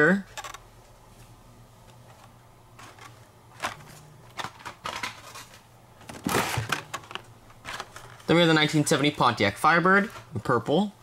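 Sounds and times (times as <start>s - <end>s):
plastic blister packs crinkling: 2.8s - 9.2s.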